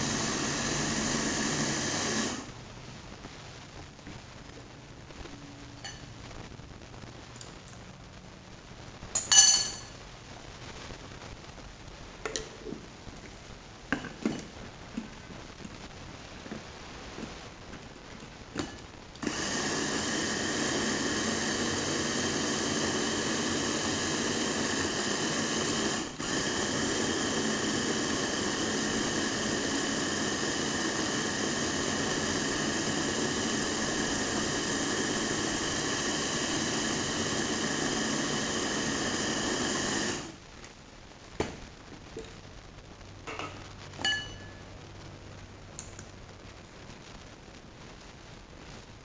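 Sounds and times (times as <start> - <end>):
food chopper motor whining: 0.0 - 2.4, 19.2 - 40.3.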